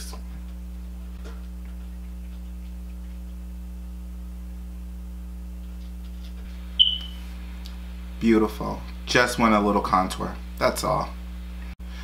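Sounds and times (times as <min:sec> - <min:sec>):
low electrical hum: 0:00.0 - 0:12.0
short high-pitched ping: 0:06.8 - 0:07.2.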